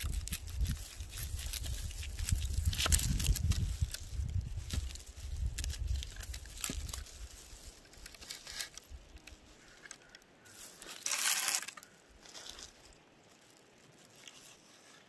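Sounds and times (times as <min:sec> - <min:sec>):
plastic bag crinkling: 0:00.0 - 0:08.8, 0:10.9 - 0:11.9.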